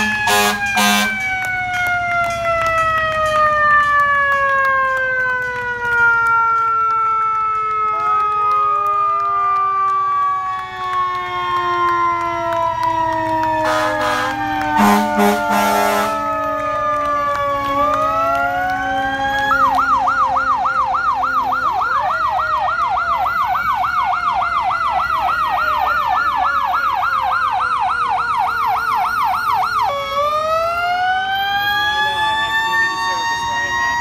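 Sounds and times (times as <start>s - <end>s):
fire truck siren wailing and yelping: 0.0s - 34.0s.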